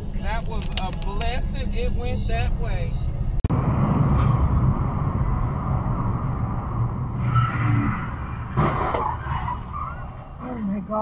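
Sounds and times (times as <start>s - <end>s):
car tyres and engine rumble: 0.0s - 11.0s.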